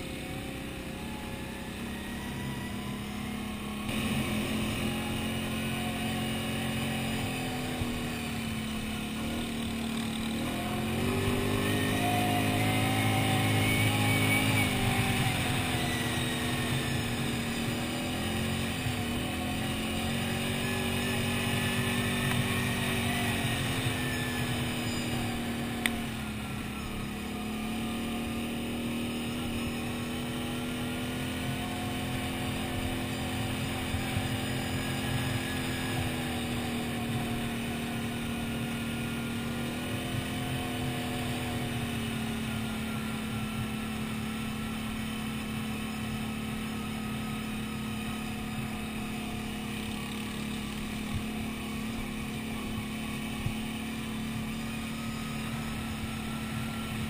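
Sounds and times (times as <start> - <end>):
quad bike engine running: 0.0 - 57.0.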